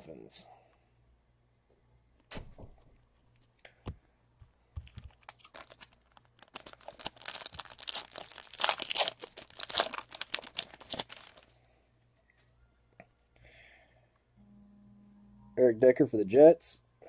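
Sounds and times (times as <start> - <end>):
foil wrapper crinkling: 4.8 - 11.5.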